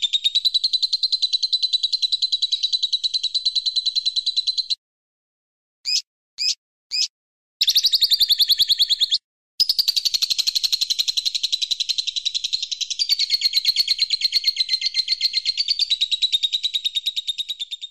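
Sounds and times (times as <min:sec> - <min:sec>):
bird trilling: 0:05.8 - 0:09.2.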